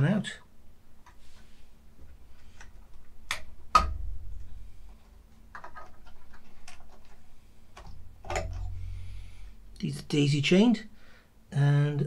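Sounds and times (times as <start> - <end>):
cable handling rattles: 4.4 - 8.9.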